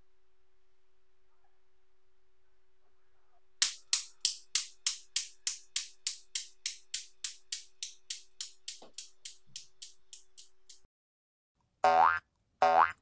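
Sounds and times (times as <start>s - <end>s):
steel balls clacking: 3.6s - 10.8s.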